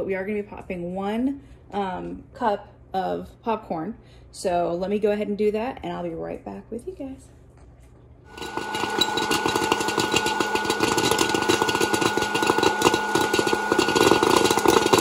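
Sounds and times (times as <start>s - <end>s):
popcorn popper fan whine: 8.2s - 15.0s
kernels clicking rapidly: 8.3s - 15.0s.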